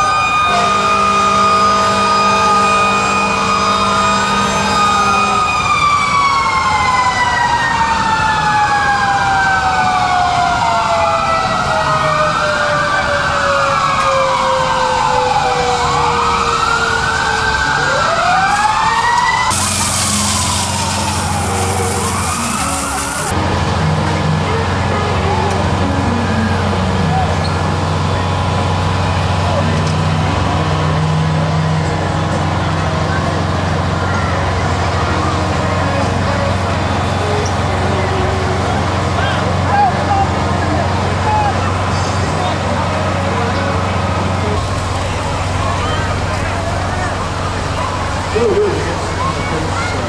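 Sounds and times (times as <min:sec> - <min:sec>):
mechanical siren winding down: 0:00.0 - 0:31.5
fire truck sirens wailing: 0:00.0 - 0:50.0
steady horn blast: 0:00.4 - 0:05.6, 0:19.4 - 0:31.8
loud hiss: 0:19.5 - 0:23.3.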